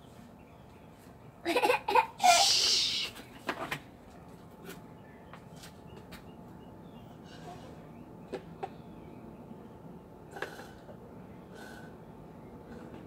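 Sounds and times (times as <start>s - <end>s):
breathy hiss: 11.5s - 12.0s.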